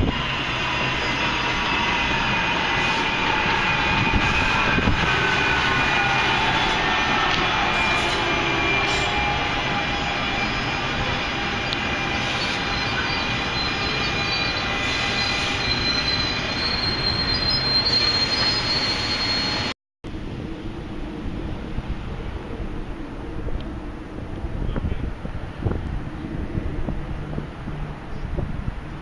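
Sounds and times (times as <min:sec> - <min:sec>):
train wheels rushing on rail: 0:00.0 - 0:19.7, 0:21.4 - 0:29.0
high squealing wheels: 0:00.0 - 0:19.8
wind on microphone: 0:03.0 - 0:05.7, 0:20.1 - 0:29.0.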